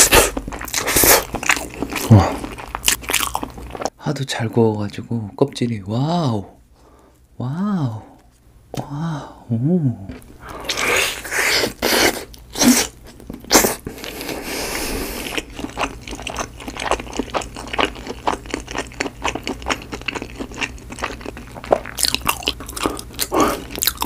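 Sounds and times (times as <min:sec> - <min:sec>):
chewing: 0:15.1 - 0:24.0.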